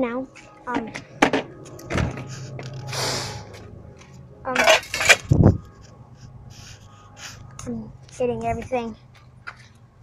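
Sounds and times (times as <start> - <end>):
heavy low bump: 0.8 - 4.0.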